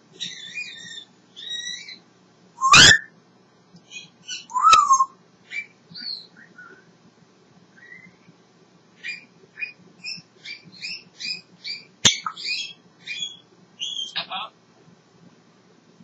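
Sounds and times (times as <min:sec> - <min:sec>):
parrot whistling and chirping: 0:00.2 - 0:02.0, 0:02.6 - 0:03.1, 0:03.9 - 0:06.8, 0:07.8 - 0:08.2, 0:09.0 - 0:14.2
parrot sharp calls: 0:02.6 - 0:03.1.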